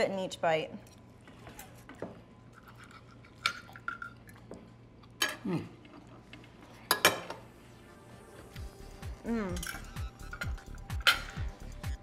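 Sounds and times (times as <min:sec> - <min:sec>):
cutlery clinking on plates: 0:09.6 - 0:11.4.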